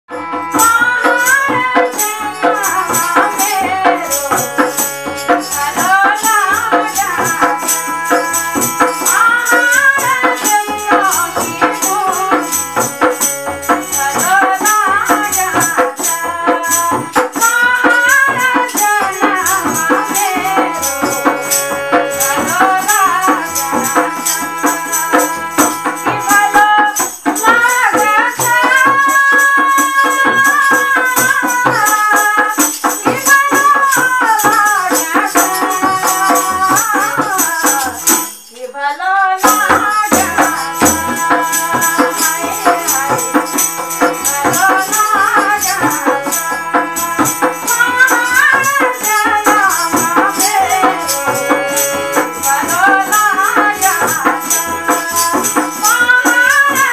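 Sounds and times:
jingle rattle shaking: 0:00.6 - 0:38.8, 0:39.4 - 0:56.9
woman singing folk melody: 0:00.6 - 0:56.9.

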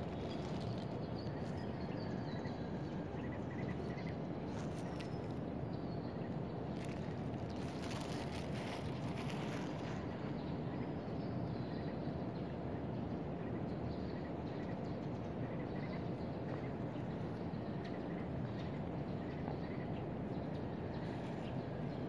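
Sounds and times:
crackly rustling: 0:00.0 - 0:02.3, 0:03.4 - 0:05.4, 0:06.7 - 0:10.3
distant traffic hum: 0:00.0 - 0:22.0.

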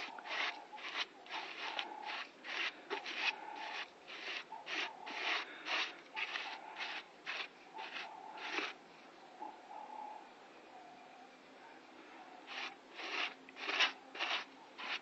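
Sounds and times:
hand scraping vehicle bodywork: 0:00.0 - 0:08.8, 0:12.5 - 0:15.0.

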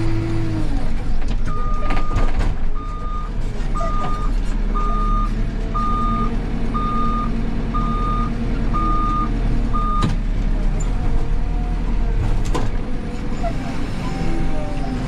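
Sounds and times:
diesel engine running: 0:00.0 - 0:15.0
reversing alarm beeping: 0:02.8 - 0:10.1.

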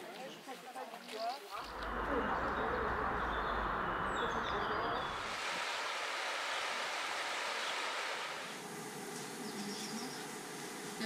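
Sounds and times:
steady rushing noise: 0:01.6 - 0:09.6.

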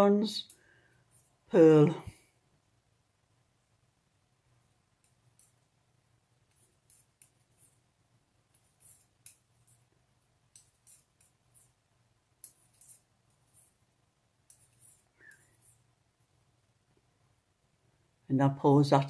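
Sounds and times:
faint low hum: 0:00.0 - 0:19.0
knitting needles clicking: 0:05.0 - 0:05.7, 0:06.4 - 0:07.9, 0:08.5 - 0:11.8, 0:12.4 - 0:13.8, 0:14.4 - 0:15.9.

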